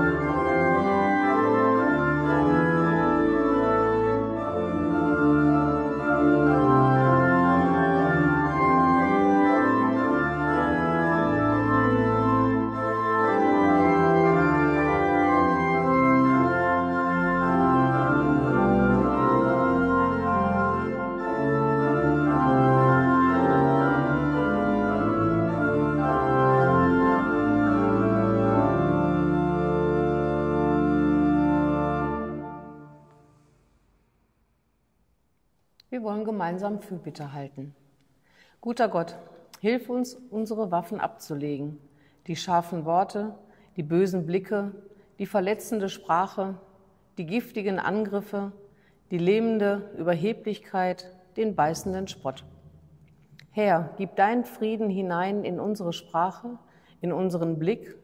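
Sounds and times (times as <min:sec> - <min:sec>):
organ playing a hymn: 0:00.0 - 0:33.5.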